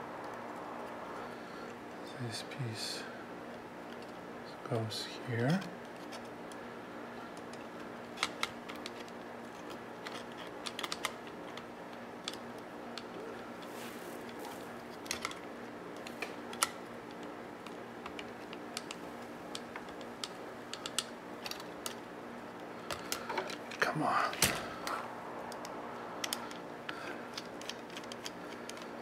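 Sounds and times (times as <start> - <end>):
faint steady hum: 0.0 - 29.0
small plastic parts clicking: 7.4 - 22.0, 25.5 - 29.0.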